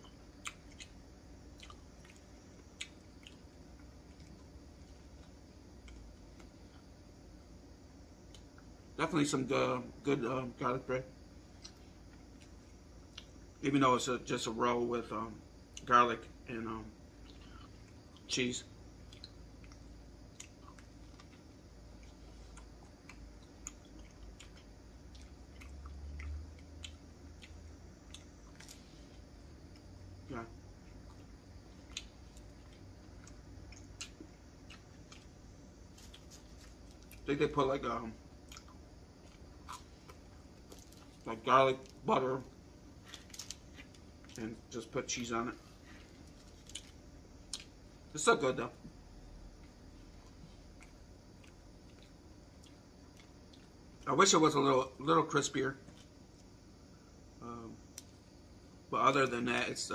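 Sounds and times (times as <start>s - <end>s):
person chewing bread: 0.0s - 7.0s, 11.5s - 13.5s, 17.2s - 18.3s, 19.0s - 30.0s, 30.7s - 37.3s, 38.2s - 42.0s, 42.8s - 44.5s, 45.7s - 47.8s, 49.5s - 54.1s.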